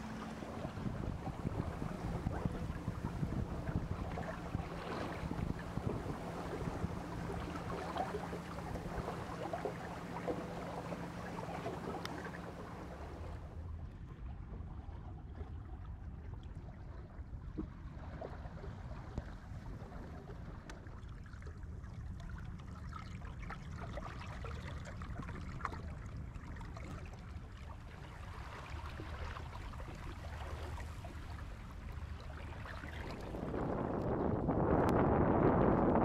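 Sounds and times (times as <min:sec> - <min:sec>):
water lapping against boat hull: 0:00.0 - 0:36.0
wind rumble on microphone: 0:00.0 - 0:36.0
wind gust buffeting microphone: 0:00.4 - 0:10.2, 0:33.0 - 0:36.0.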